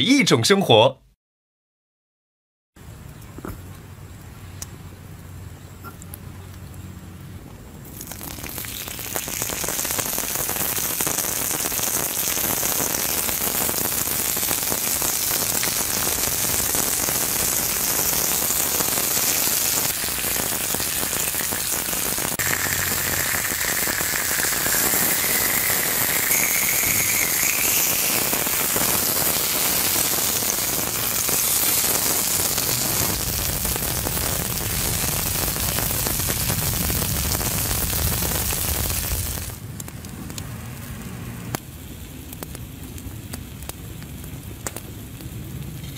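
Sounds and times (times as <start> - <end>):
meat sizzling on a hot stone: 7.8 - 39.6, 42.2 - 45.9.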